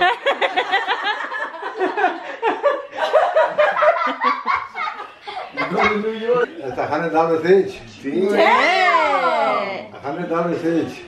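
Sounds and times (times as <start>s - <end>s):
people laughing: 0.0s - 6.5s.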